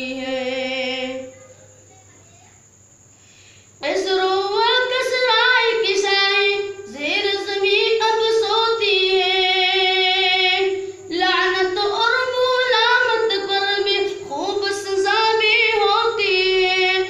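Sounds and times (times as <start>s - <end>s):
boy singing into a microphone: 3.8s - 17.0s.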